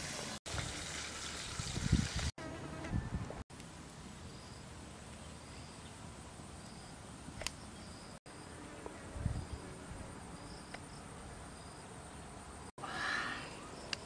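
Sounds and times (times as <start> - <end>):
insects chirping: 4.2 - 4.8, 5.4 - 8.6, 9.2 - 14.0.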